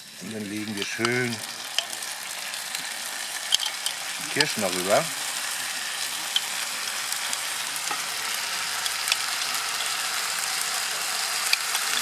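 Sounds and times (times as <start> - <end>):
food sizzling in a pan: 0.0 - 12.0
spoon clicking against jar and pan: 3.5 - 4.0.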